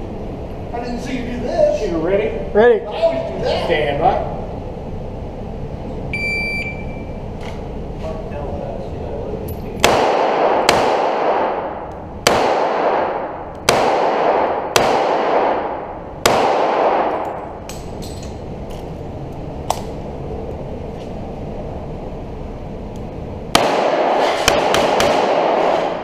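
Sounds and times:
revolver shots echoing: 0:09.8 - 0:18.0, 0:23.5 - 0:26.0.

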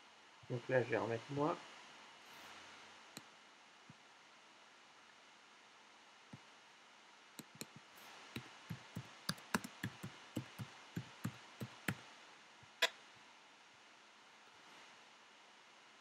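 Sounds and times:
computer keyboard typing: 0:08.4 - 0:12.0.

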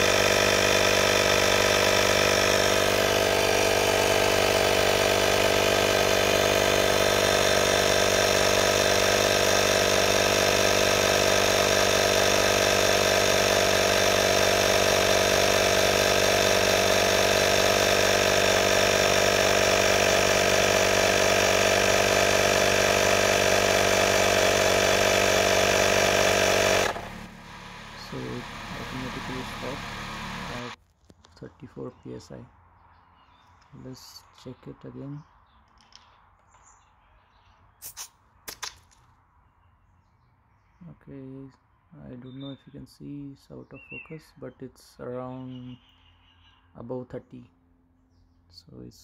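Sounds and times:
air compressor running: 0:00.0 - 0:30.8.

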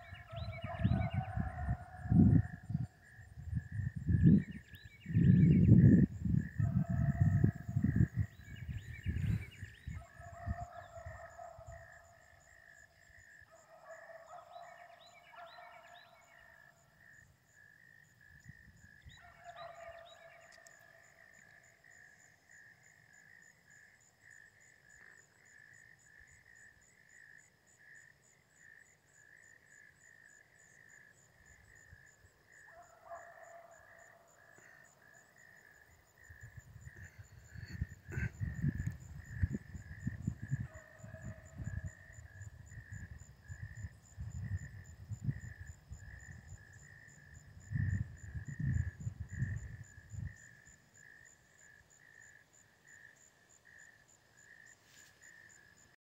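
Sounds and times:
beagle pack baying: 0:13.5 - 0:16.6, 0:32.7 - 0:34.8.

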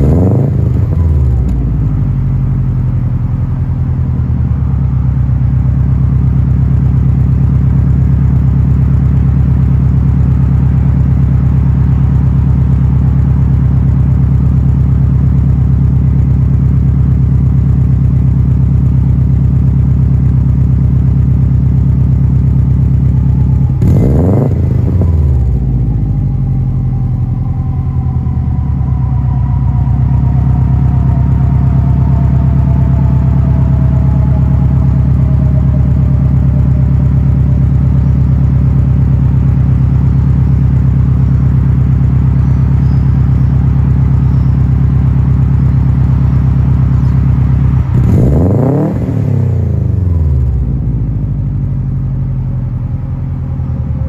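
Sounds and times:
engine revving: 0:00.0 - 0:01.8, 0:22.5 - 0:40.3, 0:47.8 - 0:50.8
car exhaust idling: 0:00.0 - 0:54.0.

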